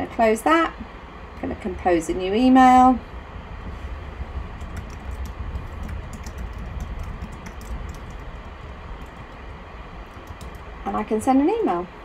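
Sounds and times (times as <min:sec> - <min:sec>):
steady low rumble: 0:00.0 - 0:12.0
keyboard typing clicks: 0:04.6 - 0:08.4, 0:10.1 - 0:10.6.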